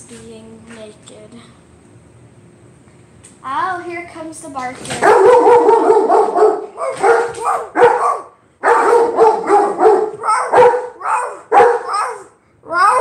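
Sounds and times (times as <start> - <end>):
dog barking: 5.0 - 13.0.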